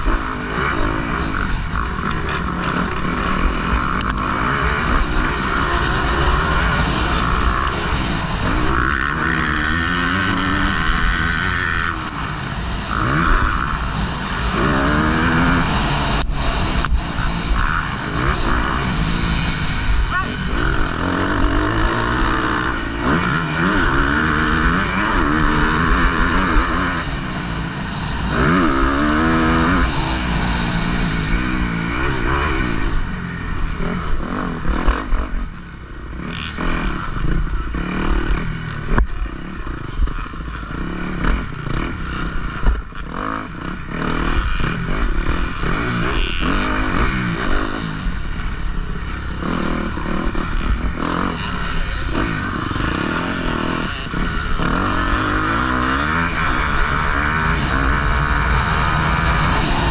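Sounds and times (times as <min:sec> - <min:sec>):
knocks and clatter over rough track: 0:00.0 - 0:59.9
motocross bike engine revving: 0:00.0 - 0:59.9
wind noise: 0:53.1 - 0:59.9.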